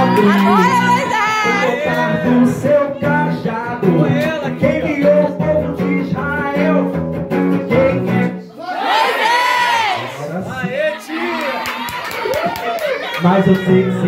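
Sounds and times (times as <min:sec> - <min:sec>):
man singing into a microphone: 0:00.0 - 0:08.5
acoustic guitar: 0:00.0 - 0:08.6.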